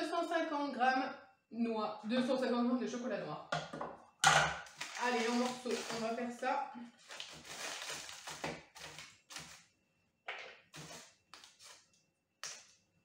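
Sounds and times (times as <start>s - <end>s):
wrapper crinkling: 4.6s - 6.2s, 7.0s - 9.6s
chocolate snapping: 12.4s - 12.8s.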